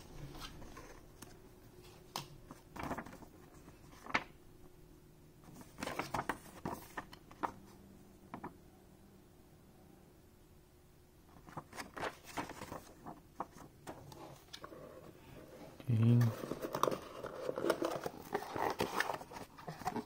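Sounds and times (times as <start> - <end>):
cardboard and paper being handled: 0.2 - 4.3, 5.5 - 7.6, 11.4 - 20.0.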